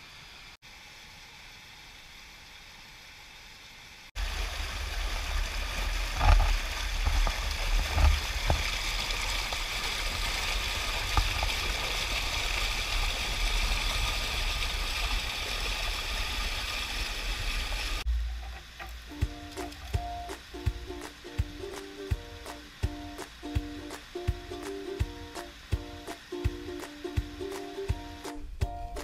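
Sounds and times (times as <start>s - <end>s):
creek rushing over rocks: 4.2s - 18.0s, 19.5s - 28.4s.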